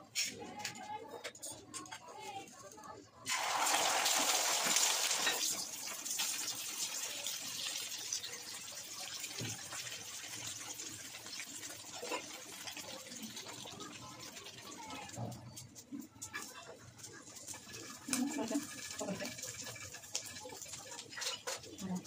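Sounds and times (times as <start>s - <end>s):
egg sizzling in frying pan: 3.3s - 15.1s, 16.3s - 21.8s.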